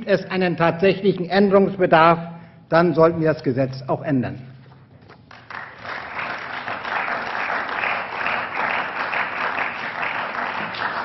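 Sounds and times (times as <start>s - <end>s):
crowd applause: 5.3s - 11.0s.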